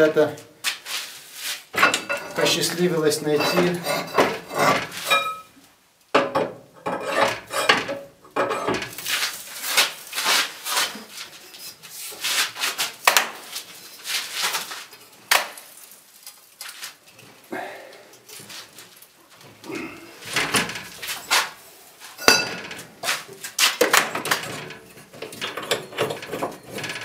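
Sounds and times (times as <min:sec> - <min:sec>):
metal clanks and scraping: 0:01.7 - 0:05.6, 0:06.2 - 0:12.8, 0:20.2 - 0:27.0.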